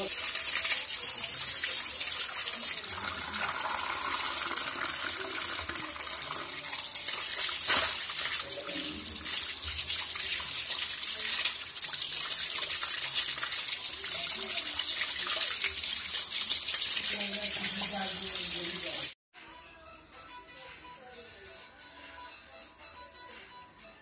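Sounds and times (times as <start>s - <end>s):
tap water splashing over hands: 5.6s - 8.5s.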